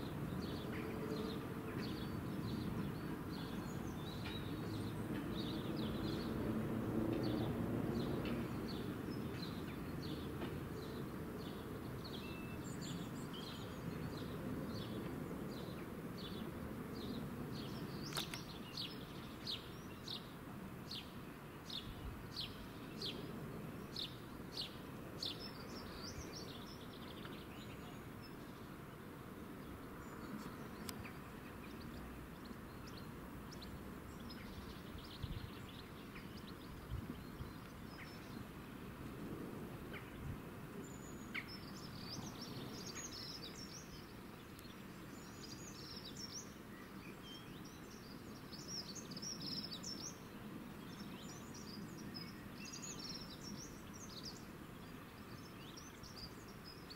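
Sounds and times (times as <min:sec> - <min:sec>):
songbird chirping: 0:00.0 - 0:56.9
sharp click: 0:18.0 - 0:18.5.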